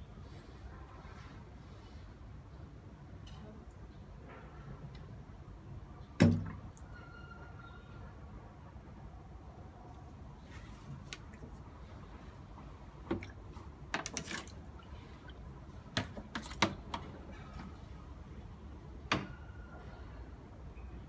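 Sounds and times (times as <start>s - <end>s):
water splashing in plastic tub: 6.2s - 6.9s, 12.4s - 17.8s.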